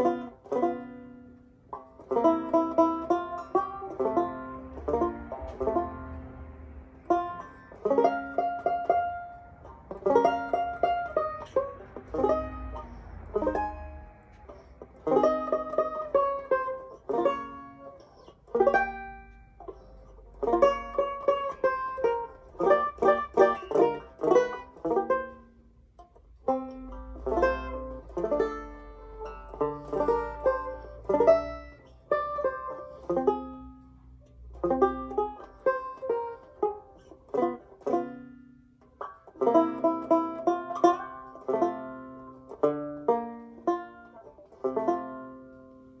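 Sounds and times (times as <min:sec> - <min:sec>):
solo banjo playing: 0:00.0 - 0:46.0.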